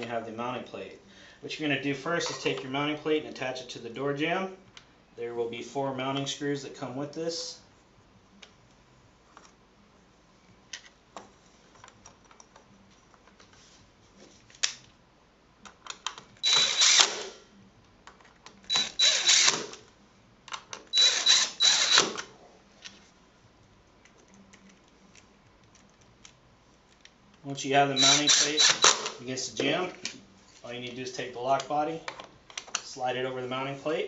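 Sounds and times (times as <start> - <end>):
drill driving screws into metal: 16.4 - 17.4, 18.7 - 19.8, 21.0 - 22.2, 28.0 - 29.2.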